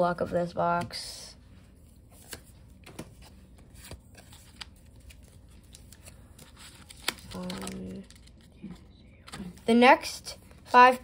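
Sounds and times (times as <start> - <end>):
cards clicking and rustling: 2.0 - 9.6.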